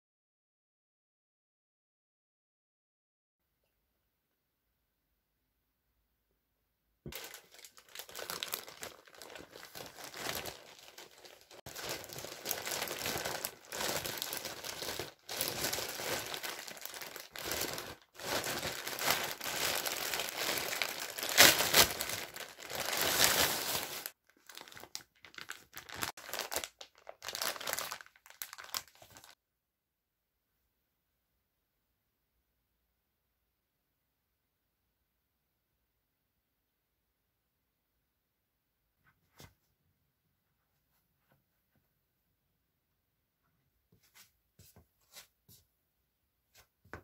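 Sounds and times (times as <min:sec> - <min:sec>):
plastic bag crinkling: 0:07.1 - 0:29.4.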